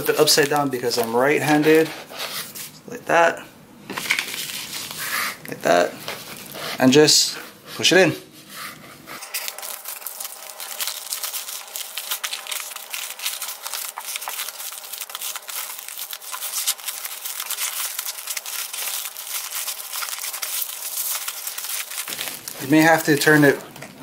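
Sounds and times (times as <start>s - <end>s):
padded envelope crinkling: 0.0s - 2.7s, 4.0s - 5.1s, 9.2s - 24.0s.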